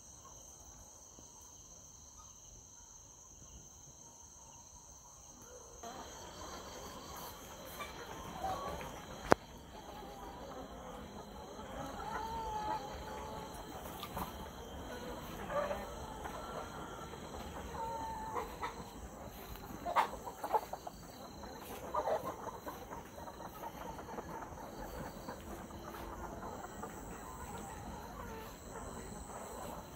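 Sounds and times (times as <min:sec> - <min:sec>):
hens clucking and calling: 0:05.3 - 0:29.9.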